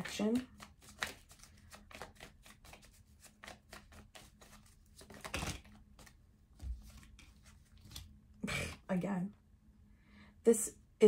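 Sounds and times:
card rustle: 0.0 - 8.2
cards shuffling: 0.0 - 8.2.

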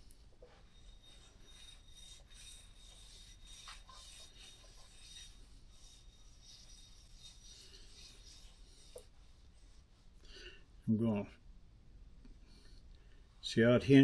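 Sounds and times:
metal rubbing on stone plate: 0.0 - 10.1.

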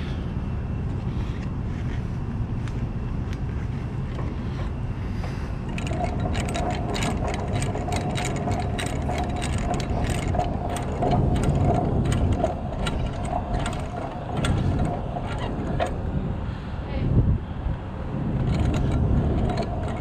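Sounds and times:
steady whine: 0.0 - 20.0
gearing clicking: 5.6 - 16.4, 18.1 - 20.0.

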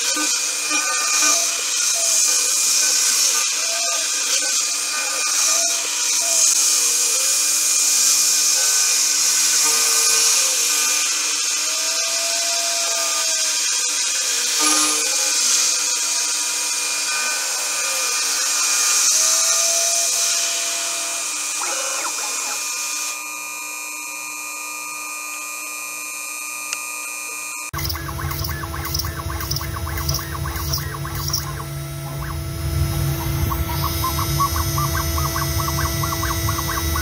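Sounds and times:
milling machine cutting hiss: 0.0 - 23.5, 26.6 - 37.0
spindle whine: 26.7 - 37.0.

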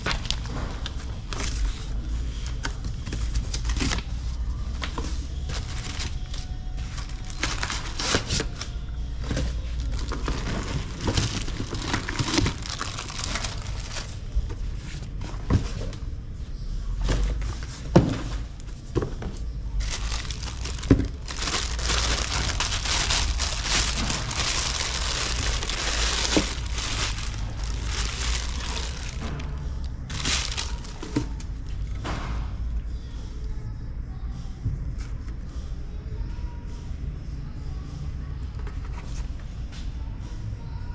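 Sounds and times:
plastic wrapping crinkling: 0.0 - 4.2, 4.8 - 14.4, 19.8 - 31.4.

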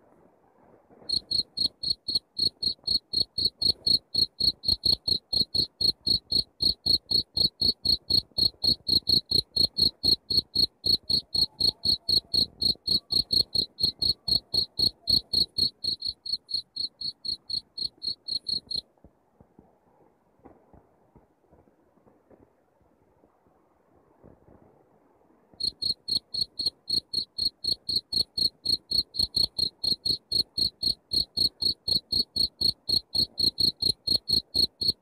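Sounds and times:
cricket chirping: 1.1 - 18.8, 25.6 - 35.0.

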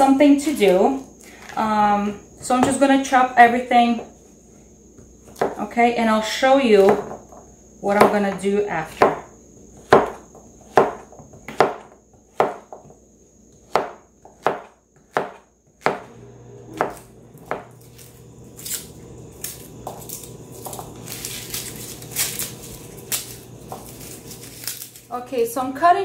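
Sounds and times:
knife chopping on a cutting board: 5.3 - 5.6, 8.0 - 13.0, 13.6 - 16.1, 16.8 - 18.8
garlic skins crackling: 16.8 - 26.0.

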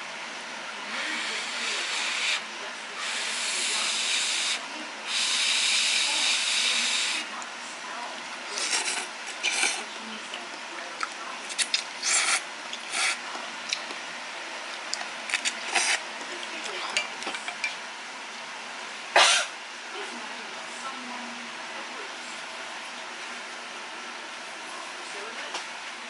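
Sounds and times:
chopsticks stirring noodles in pot: 8.6 - 10.4, 11.0 - 13.2.

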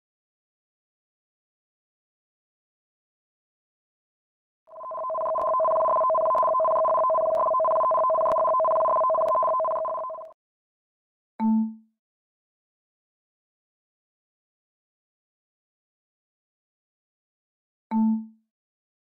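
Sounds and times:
electronic alert tone: 4.7 - 10.3.

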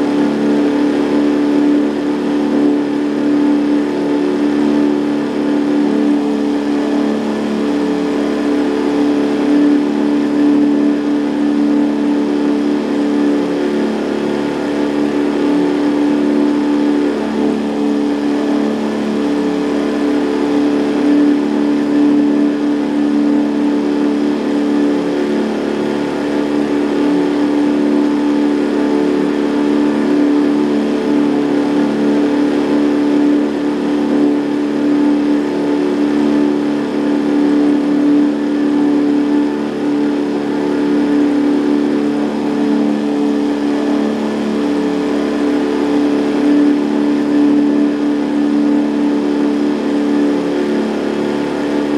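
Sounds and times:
outboard motor running: 0.0 - 51.9.

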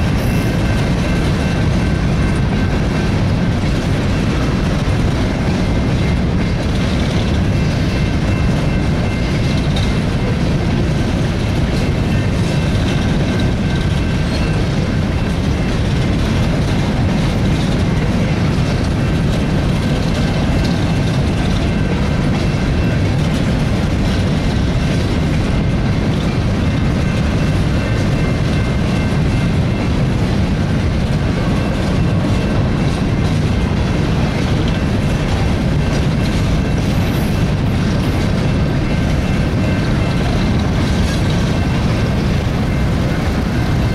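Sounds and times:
freight train wheels rumbling: 0.0 - 43.9
wheels clacking over rail joints: 0.0 - 43.9.

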